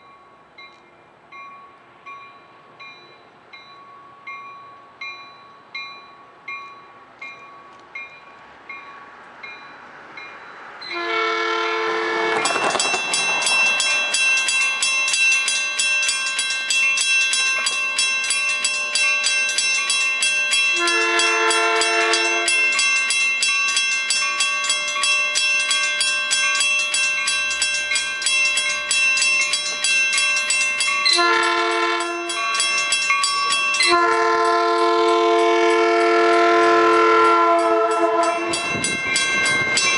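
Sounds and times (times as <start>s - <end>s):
crossing bell ringing: 0.0s - 39.9s
train horn blasts: 10.9s - 12.8s, 20.7s - 22.6s, 31.1s - 32.5s, 33.8s - 38.7s.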